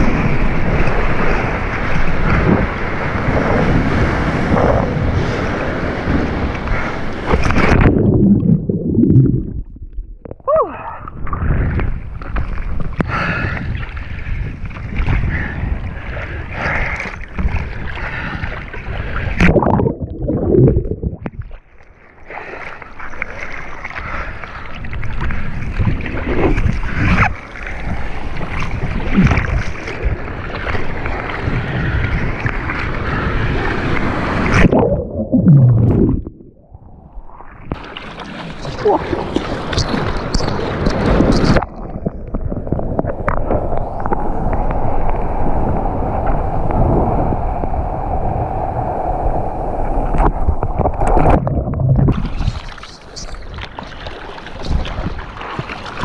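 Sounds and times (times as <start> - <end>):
wind buffeting microphone: 0.0 - 21.6, 38.5 - 53.8, 54.5 - 56.0
surf churning and splashing: 0.0 - 56.0.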